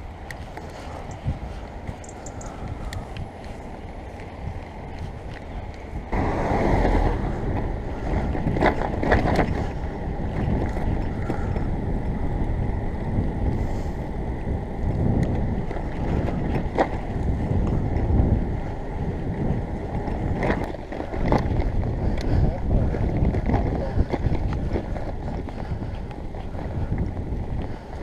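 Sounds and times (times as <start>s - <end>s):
tyre and road rumble: 0.0s - 28.0s
wind buffeting microphone: 0.0s - 28.0s.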